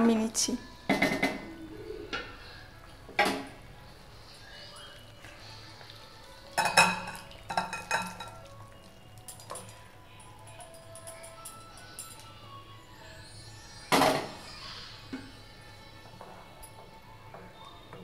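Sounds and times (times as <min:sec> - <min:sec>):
metal pan clanking: 0:06.6 - 0:08.4.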